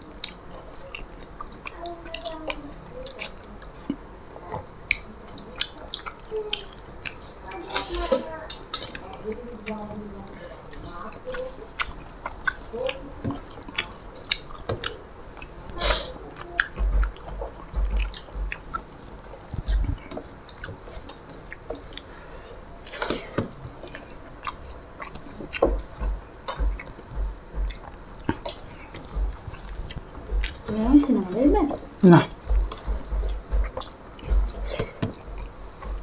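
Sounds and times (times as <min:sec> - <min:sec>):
people chewing and eating: 0:00.0 - 0:36.0.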